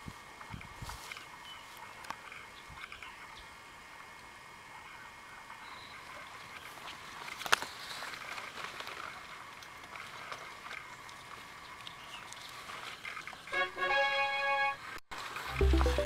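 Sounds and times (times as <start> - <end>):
rustling of dry husks: 0.1 - 3.2, 6.2 - 13.5.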